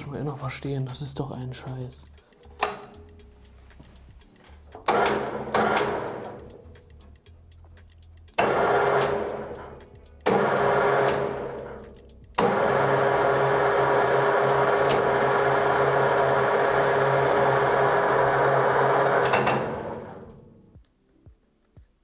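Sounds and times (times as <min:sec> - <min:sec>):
lathe motor humming: 0:04.8 - 0:06.8, 0:08.4 - 0:20.7
motor winding down: 0:04.8 - 0:06.8, 0:08.3 - 0:20.7.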